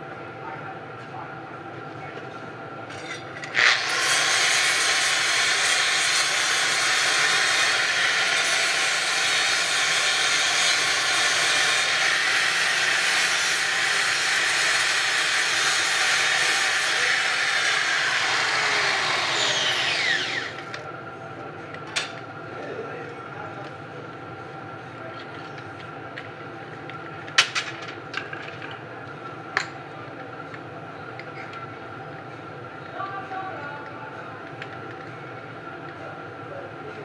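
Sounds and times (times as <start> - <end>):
angle grinder grinding metal: 3.0 - 20.7.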